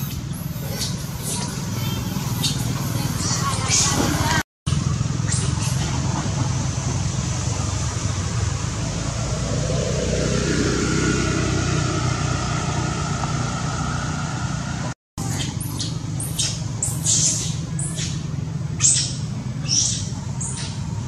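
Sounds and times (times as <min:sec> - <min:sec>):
monkeys squealing: 0:00.0 - 0:04.1, 0:15.2 - 0:20.8
outdoor rumble and hiss: 0:00.0 - 0:21.0.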